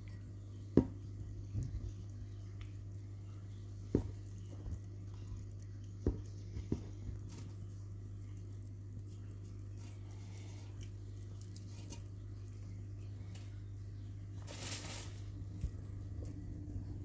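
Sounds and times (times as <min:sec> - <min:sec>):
cat chewing and licking: 0:00.0 - 0:13.3
steady low hum: 0:00.0 - 0:17.0.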